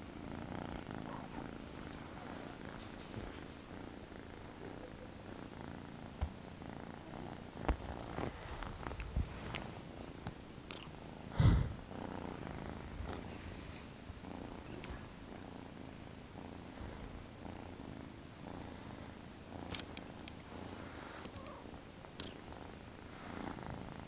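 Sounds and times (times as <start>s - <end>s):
kitten purring: 0.0s - 24.0s
faint clicks: 22.2s - 22.4s.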